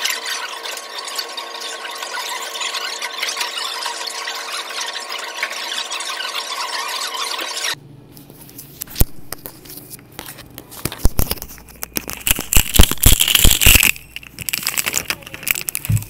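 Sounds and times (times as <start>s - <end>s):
plastic wrappers crinkling: 8.4s - 16.0s.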